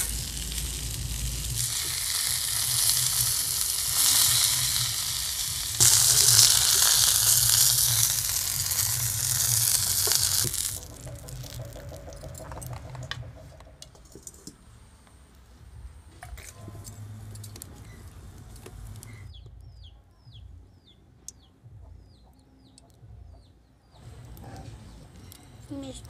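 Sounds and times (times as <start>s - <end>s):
bird chirping: 19.0s - 26.0s.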